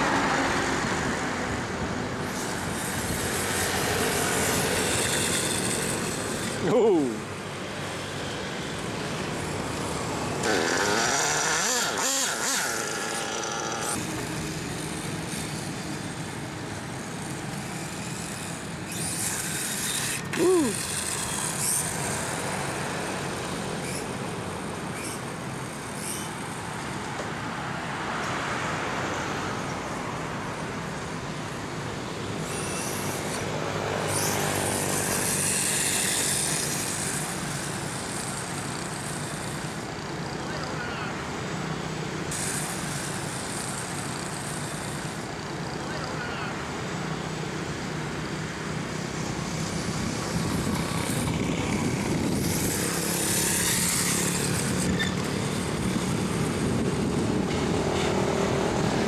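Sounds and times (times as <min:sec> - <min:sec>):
road traffic noise: 0:00.0 - 0:59.0
electric motor whining: 0:09.3 - 0:26.6, 0:32.4 - 0:39.8.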